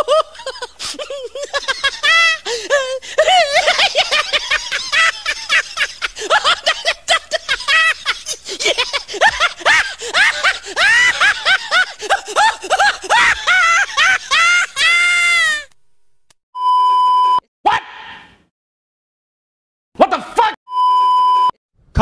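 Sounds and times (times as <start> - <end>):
high-pitched giggling laughter: 0.0 - 15.6.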